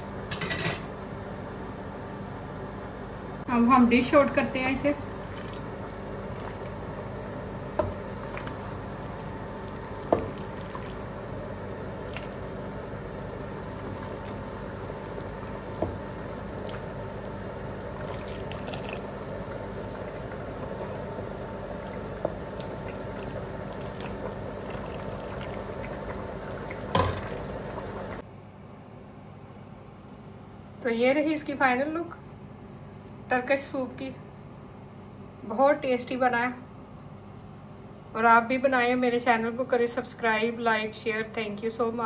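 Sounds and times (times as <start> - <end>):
soup pouring into a bowl: 17.9 - 20.4, 21.7 - 28.1.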